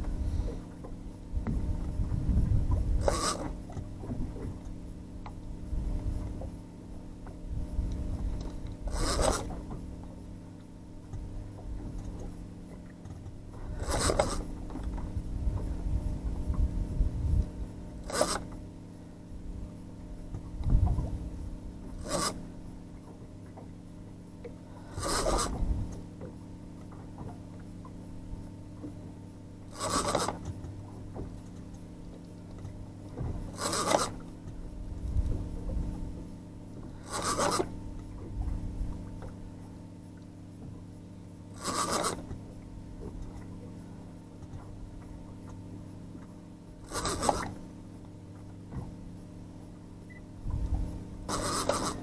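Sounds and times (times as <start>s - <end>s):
low engine hum: 0.0s - 52.0s
fishing reel drag zipping: 3.0s - 3.5s, 8.9s - 9.5s, 13.8s - 14.5s, 18.0s - 18.6s, 22.0s - 22.4s, 24.8s - 25.6s, 29.7s - 30.5s, 33.6s - 34.2s, 37.0s - 37.7s, 41.6s - 42.2s, 46.9s - 47.6s, 51.3s - 52.0s.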